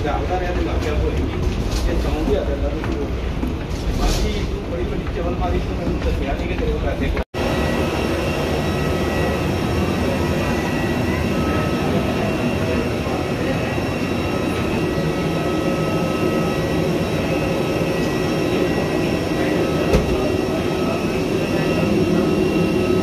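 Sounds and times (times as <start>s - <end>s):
faint high whines: 7.4s - 23.0s
rushing machinery drone: 7.4s - 23.0s.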